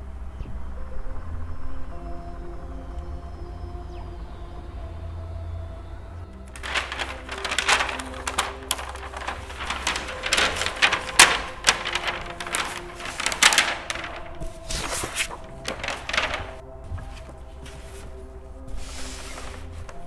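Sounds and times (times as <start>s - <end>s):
cellophane crinkling: 6.5s - 16.6s.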